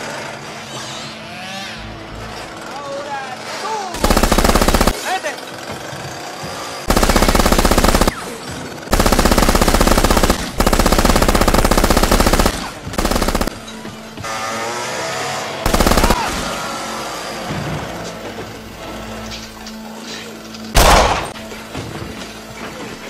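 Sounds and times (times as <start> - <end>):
machine-gun bursts: 4.0 - 5.3, 6.8 - 13.6, 15.7 - 16.6, 20.8 - 21.4.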